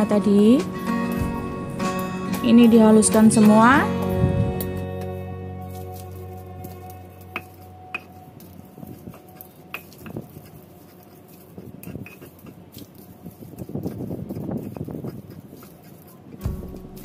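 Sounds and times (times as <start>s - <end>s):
gritty scraping in mortar: 0.2s - 17.0s.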